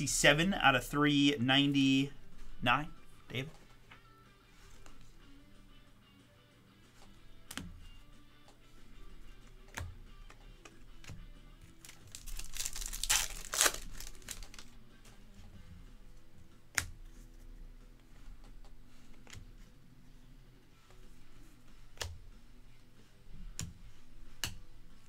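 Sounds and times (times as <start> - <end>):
foil wrapper tearing and crinkling: 11.8 - 14.7.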